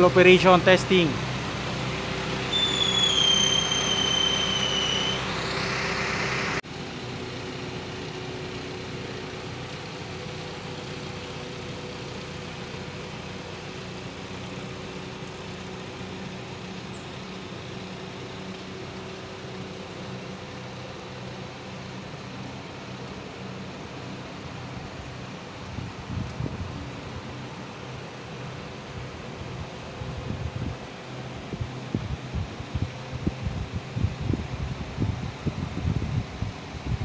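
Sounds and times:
high whine: 0:00.0 - 0:20.5
engine and hydraulic pump running: 0:00.0 - 0:37.0.

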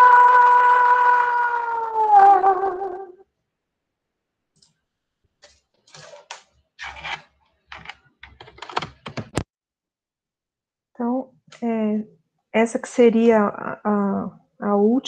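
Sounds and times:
clicks and knocks: 0:07.7 - 0:09.5.

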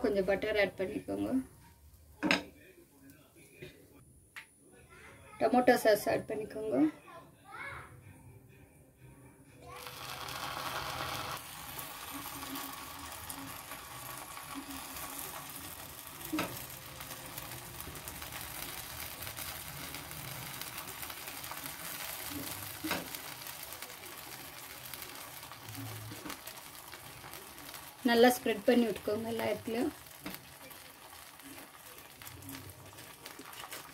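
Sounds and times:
bread sizzling on hot pan: 0:09.6 - 0:33.9.

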